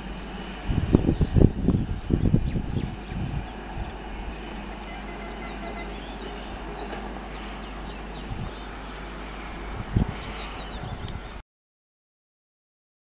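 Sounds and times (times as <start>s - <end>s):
low background rumble: 0.0s - 11.4s
small birds chirping: 0.0s - 11.4s.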